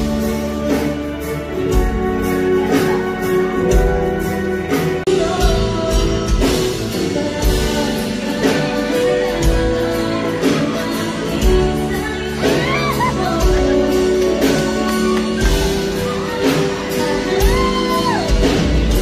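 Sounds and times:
live band music: 0.0s - 19.0s
woman singing into microphone: 5.1s - 19.0s.

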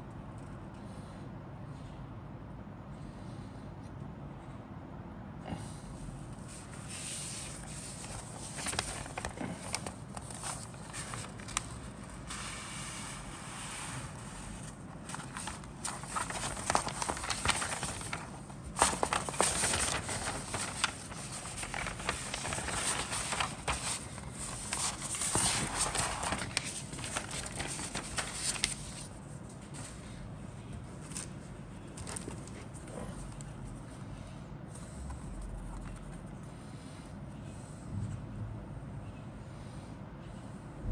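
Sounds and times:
paper rustling and crinkling: 6.4s - 33.8s.

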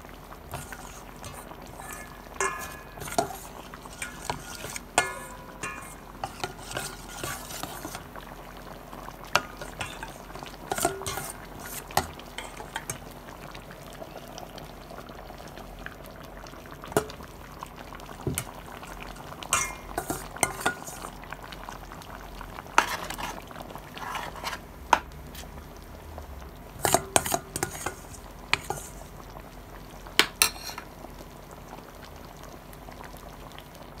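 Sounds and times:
ladle clinking and scraping pot: 0.5s - 8.1s, 9.3s - 13.1s, 18.2s - 21.2s, 22.7s - 25.5s, 26.8s - 29.1s, 30.2s - 30.9s.

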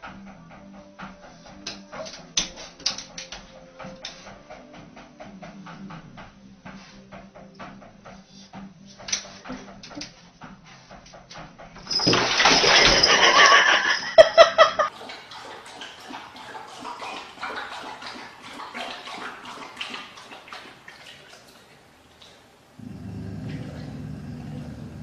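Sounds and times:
water gushing into bathtub: 11.9s - 25.0s.

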